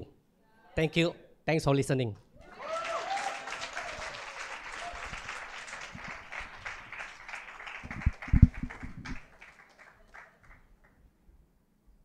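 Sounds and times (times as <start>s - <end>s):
congregation applauding: 2.4s - 11.0s.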